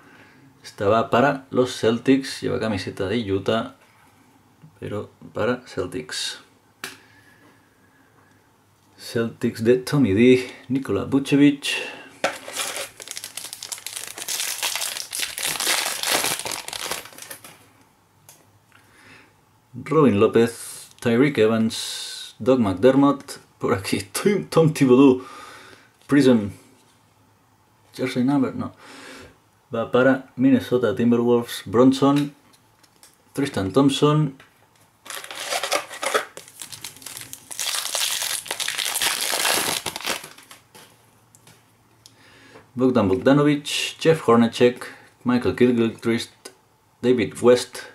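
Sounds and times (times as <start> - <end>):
foil wrapper crinkling: 12.2 - 17.6, 35.0 - 40.8.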